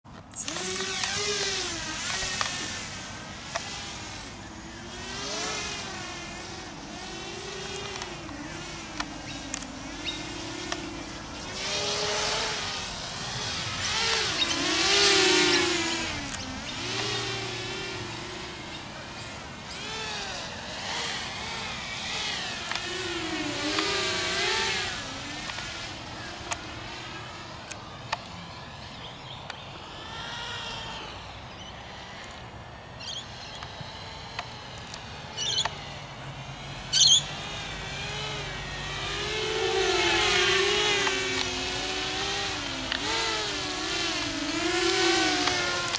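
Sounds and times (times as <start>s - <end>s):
quadcopter motors whining: 0.1s - 45.9s.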